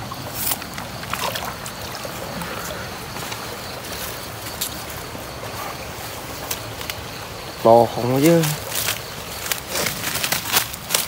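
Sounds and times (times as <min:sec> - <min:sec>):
fish splashing: 0:00.0 - 0:05.2
water sloshing: 0:00.0 - 0:11.0.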